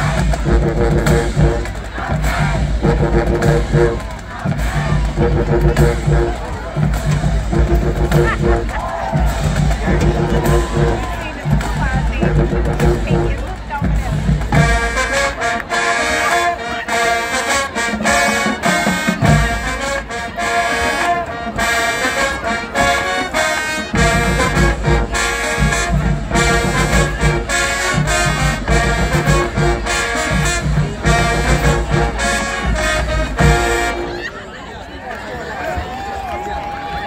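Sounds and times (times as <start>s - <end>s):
heavy bass drums: 0.0s - 15.0s
marching band playing brass tune: 0.0s - 34.9s.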